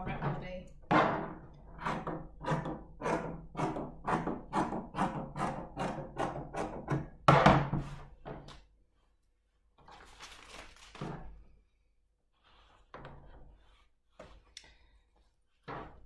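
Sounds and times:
paper and fabric rustling: 9.8s - 11.4s.

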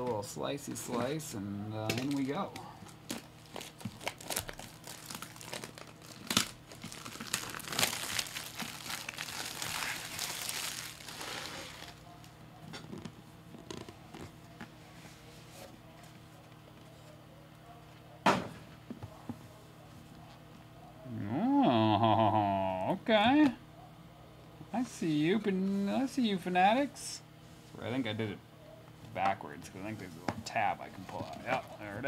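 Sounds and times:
plastic wrap crinkling and tearing: 1.9s - 12.0s.

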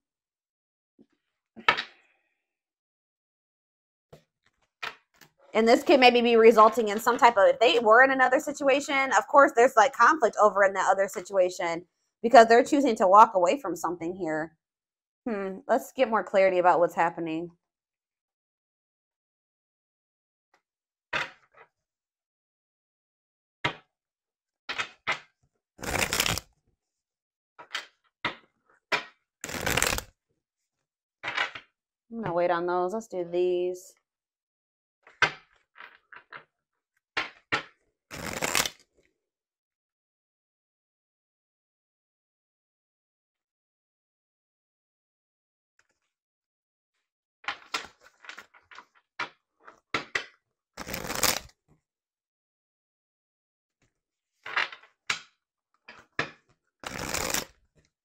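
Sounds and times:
cards being shuffled: 25.8s - 26.5s, 29.4s - 30.1s, 38.1s - 38.8s, 50.8s - 51.6s, 56.8s - 57.6s.

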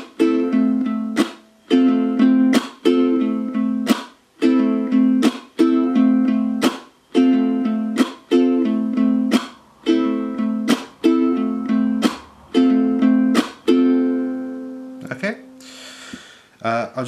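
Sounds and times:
ukulele strumming: 0.0s - 15.6s
muted strum chunk: 1.0s - 1.5s, 2.3s - 3.0s, 3.8s - 4.2s, 5.2s - 5.7s, 6.6s - 7.0s, 7.9s - 13.8s.

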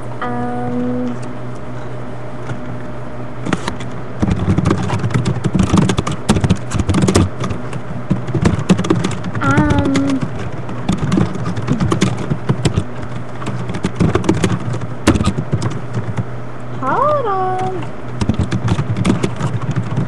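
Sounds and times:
steady low hum: 0.0s - 20.0s
person humming: 0.2s - 1.2s, 9.4s - 10.3s
typing on computer keyboard: 4.2s - 16.2s, 17.6s - 20.0s.

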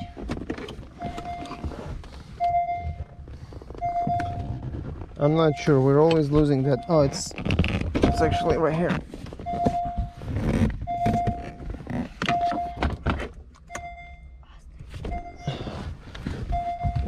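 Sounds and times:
interior trim clicks and knocks: 0.0s - 5.2s, 7.4s - 14.0s
car warning chime: 1.0s - 1.7s, 2.4s - 3.2s, 3.8s - 4.6s, 5.2s - 7.3s, 8.0s - 8.9s, 10.8s - 11.6s, 12.3s - 12.9s, 13.6s - 14.4s, 15.0s - 15.8s, 16.5s - 17.0s.

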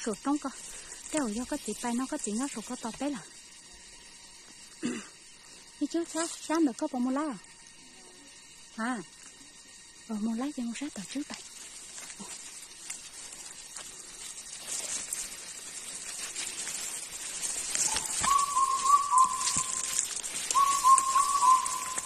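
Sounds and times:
dry grass rustling and crackling: 0.0s - 7.7s, 9.2s - 22.0s
short whistled notes: 17.8s - 19.9s, 20.5s - 22.0s.

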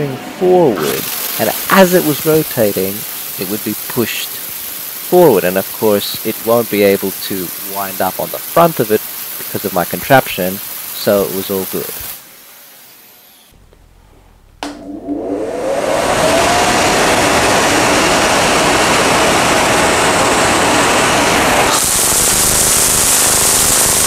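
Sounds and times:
high hiss: 0.0s - 24.0s
angle grinder whining: 14.6s - 24.0s.

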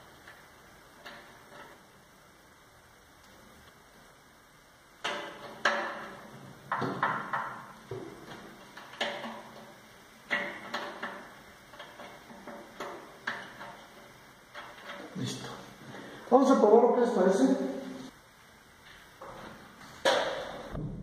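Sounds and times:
sharp clicks knocks and rustles: 5.0s - 15.2s.

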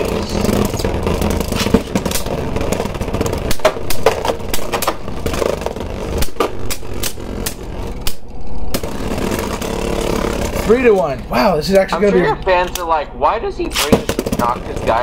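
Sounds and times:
spinning tops whirring: 0.0s - 12.0s.

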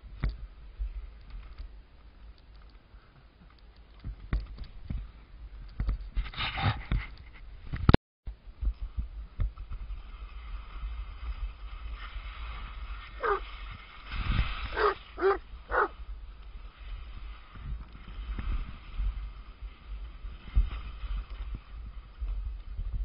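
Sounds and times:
wind on microphone: 4.0s - 23.0s
skis sliding on snow: 8.9s - 23.0s
dog whining: 13.2s - 13.4s, 14.8s - 15.9s.

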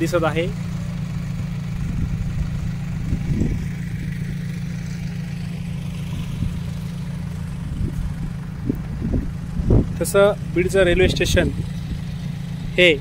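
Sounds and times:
construction machinery engines rumbling: 0.0s - 13.0s
low thumps: 6.0s - 12.2s.

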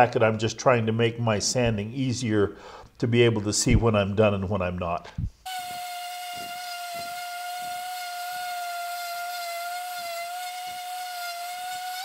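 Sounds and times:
palm sander on wood: 5.5s - 12.0s.

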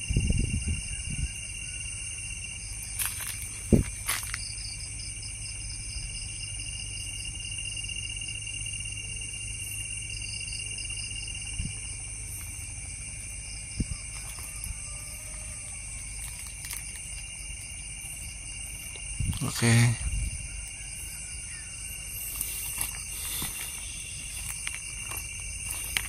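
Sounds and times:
insect trills: 0.0s - 26.0s
pulsing insect chirp: 0.0s - 26.0s.

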